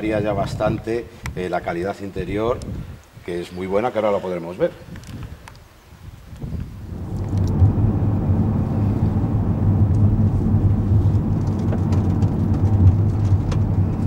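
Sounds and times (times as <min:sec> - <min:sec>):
tyre and road rumble: 0:06.4 - 0:14.0
car engine hum inside cabin: 0:06.8 - 0:14.0.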